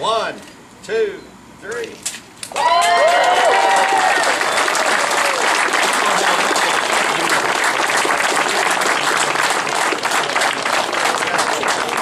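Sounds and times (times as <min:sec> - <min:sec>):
crowd clapping: 0:02.5 - 0:12.0.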